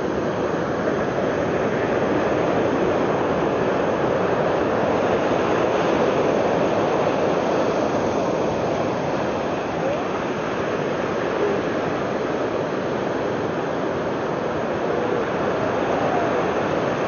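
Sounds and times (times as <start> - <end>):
ocean surf washing: 0.0 - 17.0.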